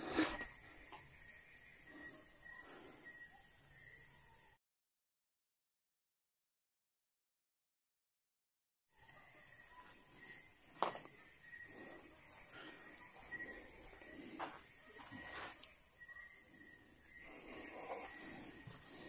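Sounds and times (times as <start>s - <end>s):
crickets trilling: 0.0s - 4.6s, 8.9s - 19.0s
footsteps: 12.4s - 15.7s.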